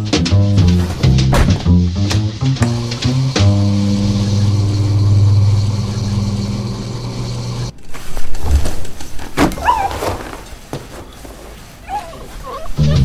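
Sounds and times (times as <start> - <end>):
washing machine humming: 0.0 - 9.7
short wavering whine: 2.8 - 7.8.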